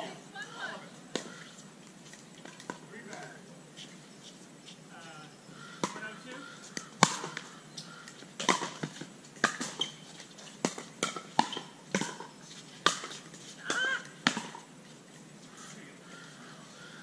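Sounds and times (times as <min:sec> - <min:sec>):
pickleball popping off paddles: 0:05.8 - 0:14.7.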